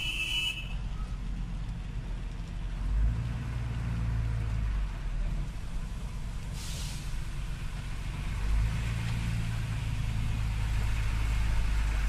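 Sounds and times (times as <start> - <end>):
diesel locomotive engine rumbling: 0.0 - 12.0
sharp hiss of air: 6.5 - 7.2.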